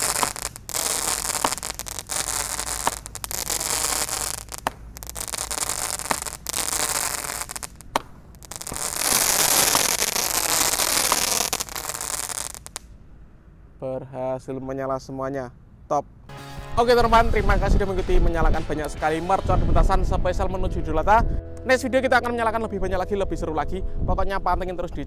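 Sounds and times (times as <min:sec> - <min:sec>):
firework pops: 0:00.0 - 0:12.9
fireworks crackling and hissing: 0:00.0 - 0:12.9.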